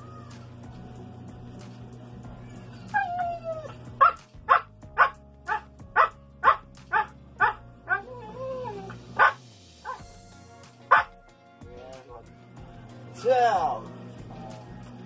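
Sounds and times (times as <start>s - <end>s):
dog warbling howl: 2.8s - 4.2s, 7.9s - 9.3s
dog barking: 4.0s - 8.4s, 9.2s - 10.0s, 10.9s - 11.2s.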